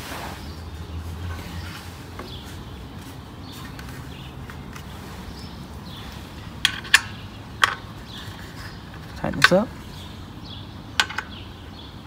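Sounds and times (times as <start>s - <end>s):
faint background noise: 0.0s - 12.0s.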